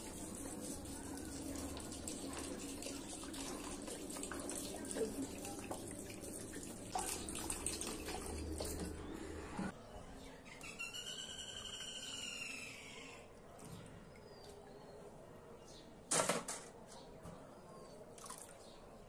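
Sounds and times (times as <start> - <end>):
water pouring into bowl: 0.0 - 9.1.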